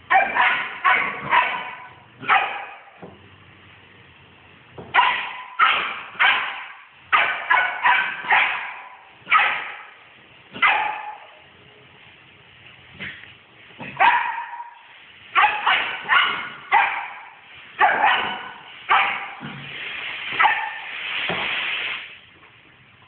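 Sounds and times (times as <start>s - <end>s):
dog barking: 0.0s - 3.0s, 4.9s - 10.0s, 10.6s - 11.4s, 13.9s - 19.4s, 20.4s - 20.9s.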